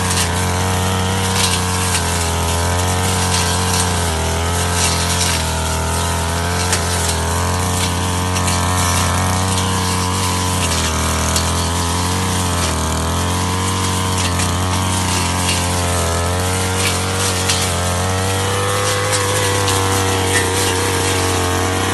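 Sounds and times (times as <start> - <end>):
brush cutter cutting grass: 0.0 - 21.9.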